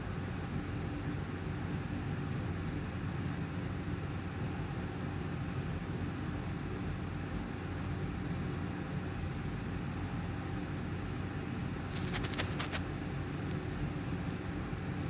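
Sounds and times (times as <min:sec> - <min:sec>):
air conditioner humming: 0:00.0 - 0:15.0
faint ticks: 0:11.9 - 0:14.5.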